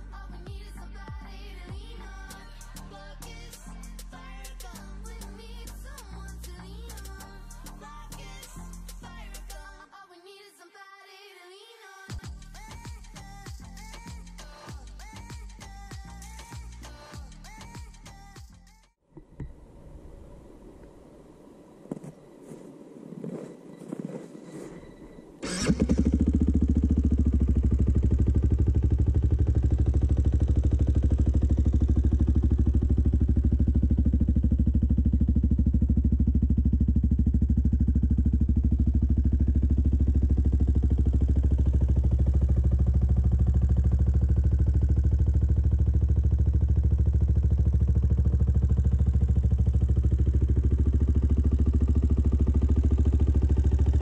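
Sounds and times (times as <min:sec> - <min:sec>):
motorcycle engine idling: 0:12.1 - 0:18.4, 0:25.0 - 0:54.0.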